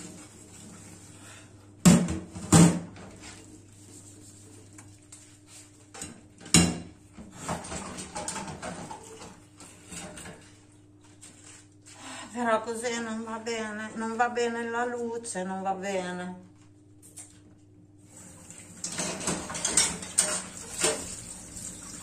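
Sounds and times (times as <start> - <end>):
dishes clinking in steel sink: 18.8 - 21.3.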